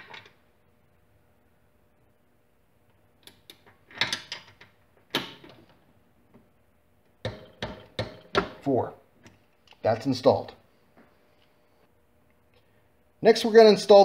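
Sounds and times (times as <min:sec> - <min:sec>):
knocks: 0:07.2 - 0:08.6.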